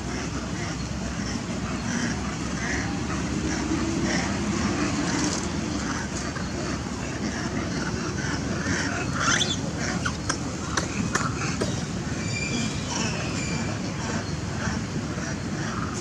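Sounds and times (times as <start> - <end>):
monkeys squeaking and calling: 5.8 - 16.0.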